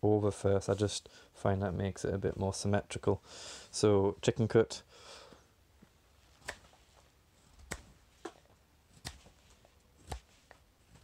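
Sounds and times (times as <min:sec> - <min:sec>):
knife carving wood shavings: 0:08.9 - 0:11.0.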